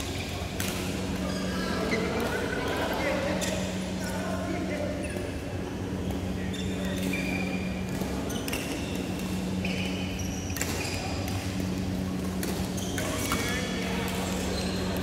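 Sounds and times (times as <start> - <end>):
shoes squeaking on court: 0.0 - 2.3, 6.0 - 15.0
steady low hum: 0.0 - 15.0
racket hitting shuttlecock: 0.5 - 1.0.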